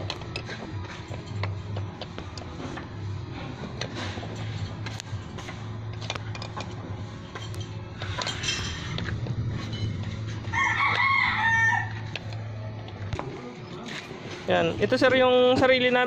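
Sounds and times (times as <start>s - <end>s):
steady low hum: 0.0s - 16.0s
rooster crowing: 10.4s - 12.2s.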